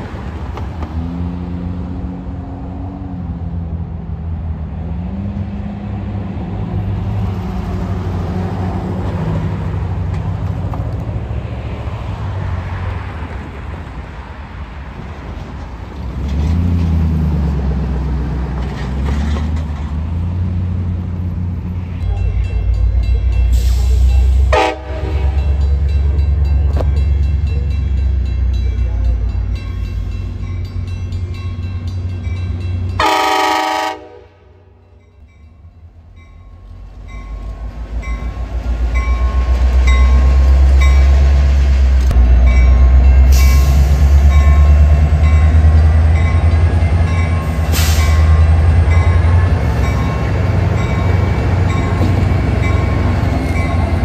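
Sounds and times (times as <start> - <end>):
train rumbling past: 0.0 - 54.0
train horn blasts: 24.3 - 25.7, 33.0 - 34.8.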